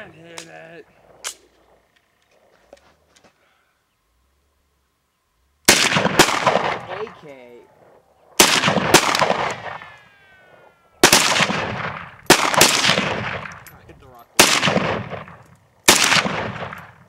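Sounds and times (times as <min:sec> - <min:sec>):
rifle shots echoing: 0:05.6 - 0:17.0.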